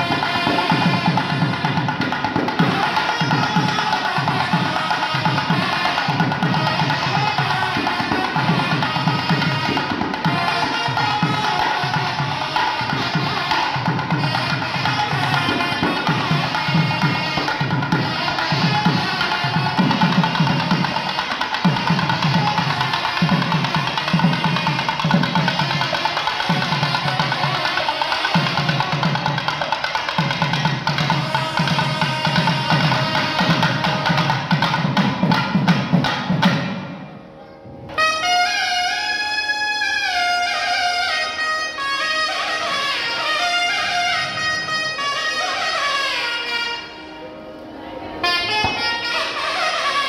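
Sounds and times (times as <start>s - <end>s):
hand drums in fast rhythm: 0.0s - 36.9s.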